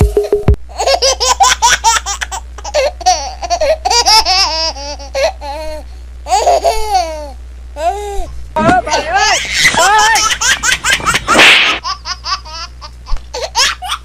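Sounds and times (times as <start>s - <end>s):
high-pitched laughing: 8.8s - 12.7s.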